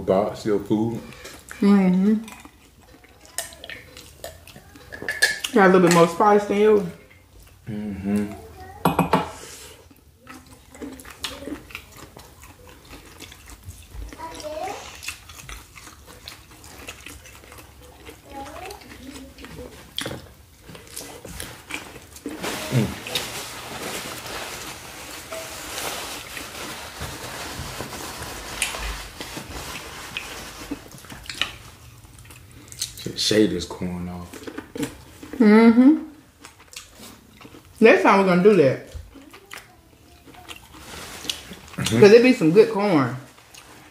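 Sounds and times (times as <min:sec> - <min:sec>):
chewing and wet mouth sounds: 0:00.3 - 0:08.8, 0:09.4 - 0:23.6, 0:25.2 - 0:43.9.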